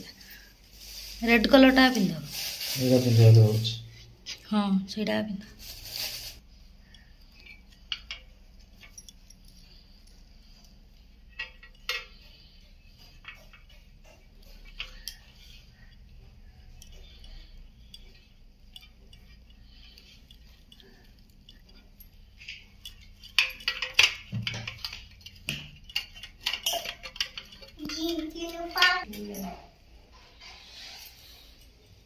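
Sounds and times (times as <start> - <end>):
bangles clinking: 5.5 - 29.7.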